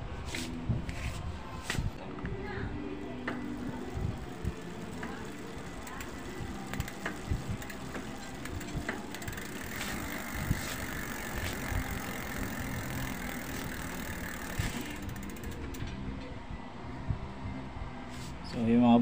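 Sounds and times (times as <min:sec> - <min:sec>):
bicycle chain whirring with clicks: 0:03.2 - 0:16.0.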